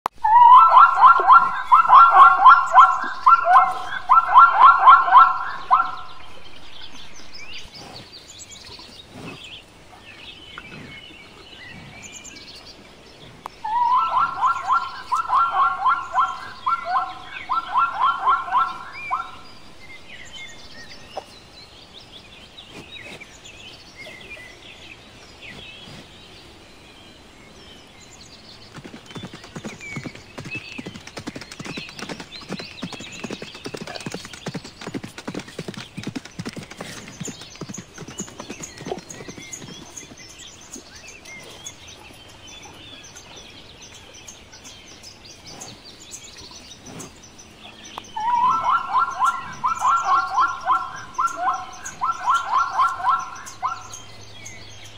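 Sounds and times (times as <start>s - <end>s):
zebras barking: 0.2s - 6.4s, 13.6s - 19.8s, 48.2s - 54.9s
faint bird chirps: 0.2s - 8.9s, 13.6s - 21.6s, 45.4s - 54.9s
hooves galloping: 28.7s - 41.0s, 48.1s - 54.8s.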